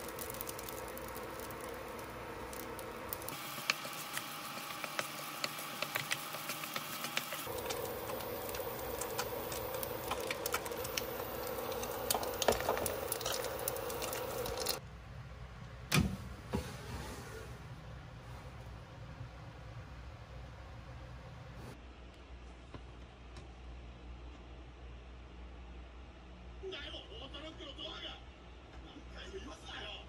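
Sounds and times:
food sizzling in a pan: 0.0 - 14.8
oil spitting crackles: 0.0 - 14.8
steady hum: 0.0 - 22.0.

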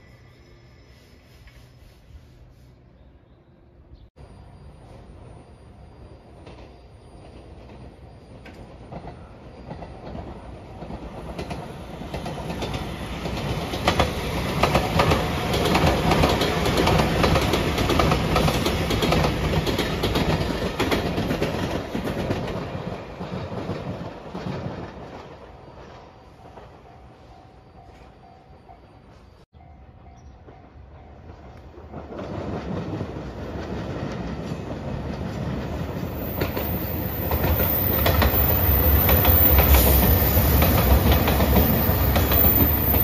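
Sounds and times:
electric train passing: 3.5 - 43.0
train wheels clacking over rail joints: 7.3 - 25.3.

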